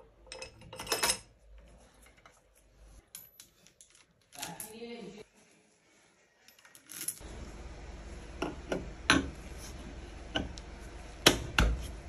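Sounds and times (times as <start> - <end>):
metal parts clinking: 3.0 - 4.8, 6.5 - 7.2
low steady hum: 5.2 - 12.0.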